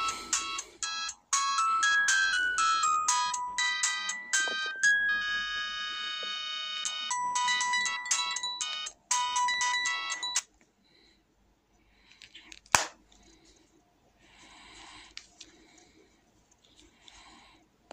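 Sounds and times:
phone ringtone melody: 0.0 - 10.4.

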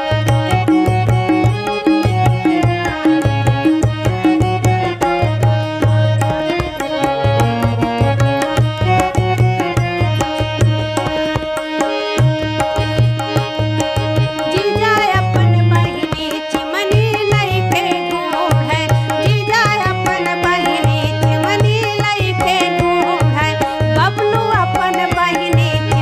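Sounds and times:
harmonium: 0.0 - 26.0
tabla rhythm: 0.0 - 26.0
woman singing folk song: 14.5 - 26.0.

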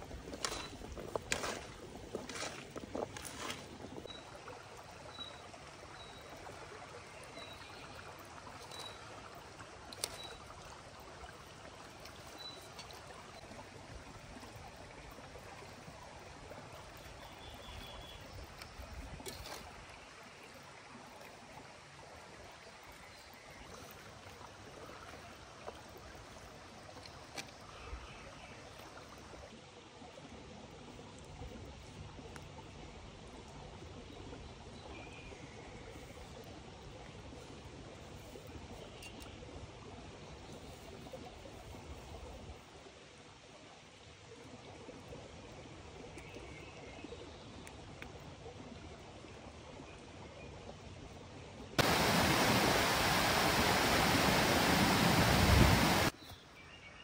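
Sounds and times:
running water rushing: 51.8 - 56.2.

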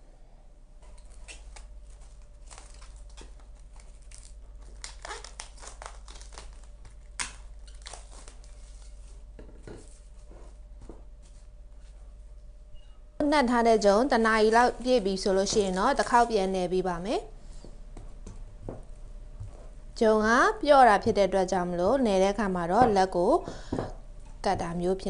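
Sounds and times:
plastic cling film crinkling: 1.0 - 9.3, 14.2 - 16.5.

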